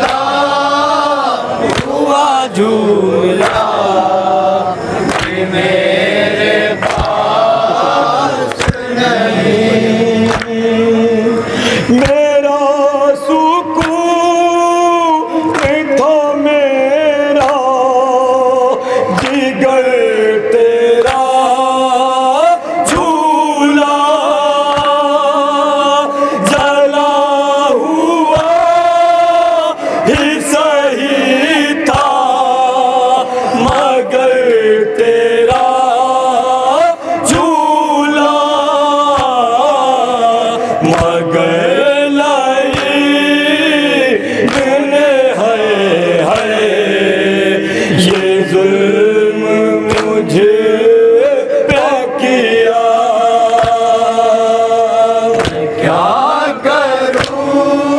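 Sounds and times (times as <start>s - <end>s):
men chanting together: 0.0s - 57.9s
hands beating on chest: 55.4s - 55.6s.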